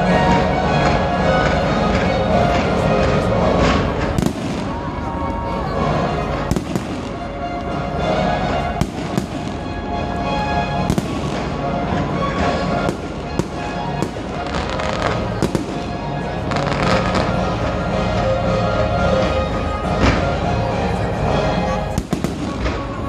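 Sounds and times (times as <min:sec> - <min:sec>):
music playing: 0:00.0 - 0:23.0
fireworks bangs: 0:02.0 - 0:07.8, 0:08.5 - 0:10.2, 0:10.8 - 0:17.9, 0:21.9 - 0:23.0.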